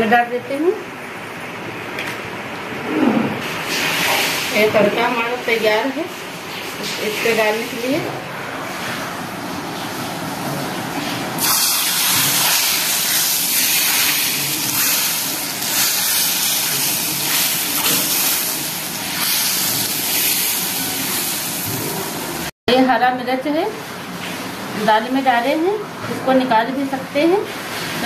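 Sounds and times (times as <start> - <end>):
loud hissing sizzle: 11.4 - 22.5.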